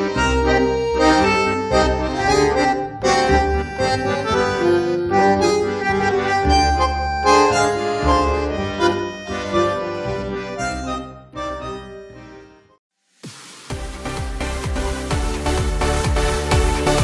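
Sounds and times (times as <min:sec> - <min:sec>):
melody over bass line: 0:00.0 - 0:12.3.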